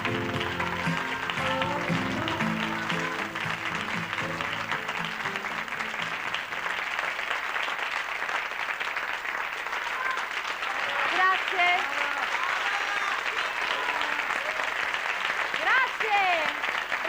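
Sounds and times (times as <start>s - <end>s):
pop song music: 0.0s - 5.5s
studio audience applauding: 0.0s - 17.0s.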